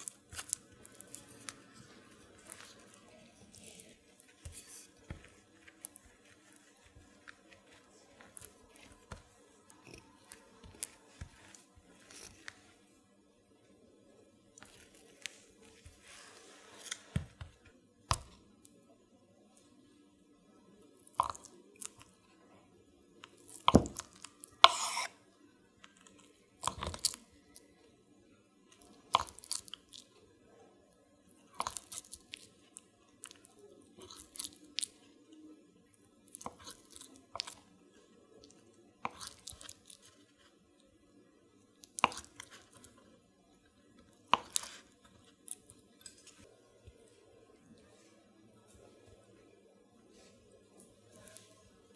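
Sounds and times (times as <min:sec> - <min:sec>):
knife slicing mozzarella: 0:00.0 - 0:12.8, 0:23.3 - 0:25.2, 0:44.2 - 0:45.7.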